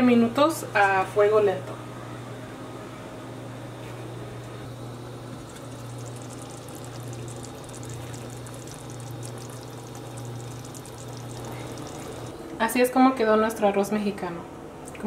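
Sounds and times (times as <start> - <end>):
steady low hum: 0.0 - 15.0
rice bubbling in a pot: 4.7 - 12.4.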